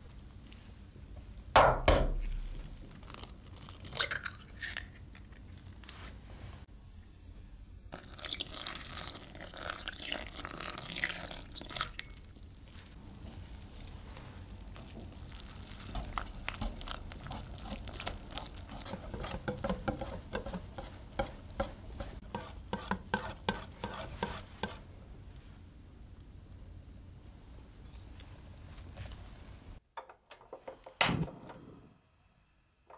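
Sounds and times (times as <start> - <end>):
milk pouring into bowl: 8.0 - 12.5.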